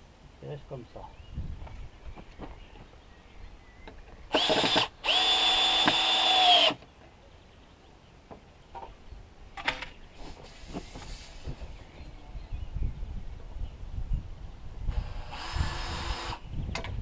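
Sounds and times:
electric drill running: 0:04.3 - 0:06.8, 0:14.9 - 0:16.4.

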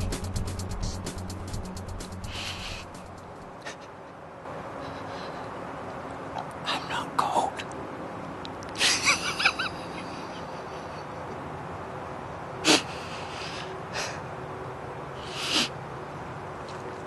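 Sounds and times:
man laughing: 0:08.8 - 0:11.3.

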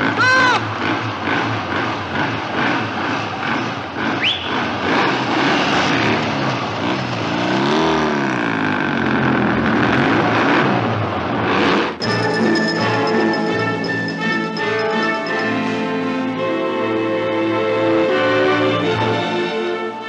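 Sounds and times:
motorcycle engine accelerating: 0:00.0 - 0:17.0.

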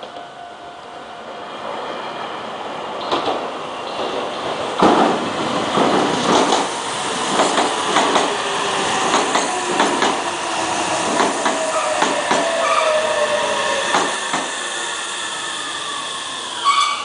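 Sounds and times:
train wheels rushing on rail: 0:01.3 - 0:17.0
wheels clacking over rail joints: 0:03.0 - 0:10.3, 0:11.1 - 0:12.8.

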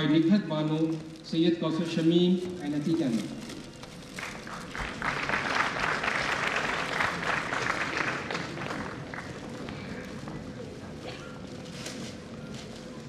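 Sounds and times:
audience applauding: 0:03.9 - 0:10.3.

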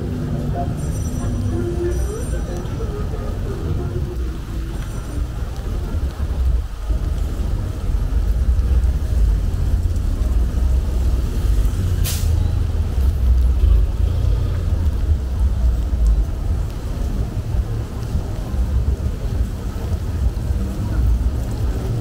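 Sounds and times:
rain on the beach: 0:00.0 - 0:22.0
wind rumble on microphone: 0:02.1 - 0:22.0
short hiss: 0:12.0 - 0:12.4.

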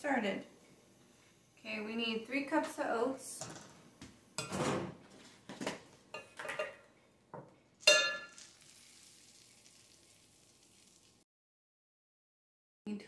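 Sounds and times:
kitchenware clinking: 0:04.4 - 0:04.9, 0:06.1 - 0:08.6
oats pouring into cup: 0:08.3 - 0:11.2.

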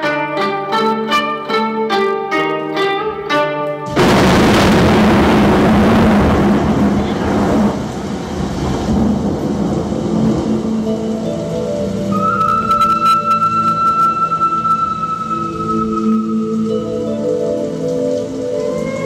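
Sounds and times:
plucked-string melody: 0:00.0 - 0:04.0, 0:10.6 - 0:19.0
loud crash of noise: 0:03.9 - 0:10.8.

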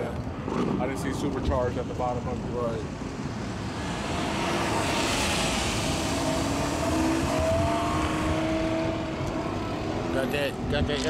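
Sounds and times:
car driving past: 0:03.2 - 0:10.1.

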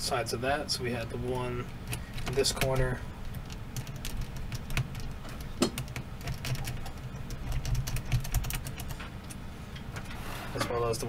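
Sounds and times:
low steady hum: 0:00.0 - 0:11.0
fingers clicking on plastic: 0:01.8 - 0:09.4.

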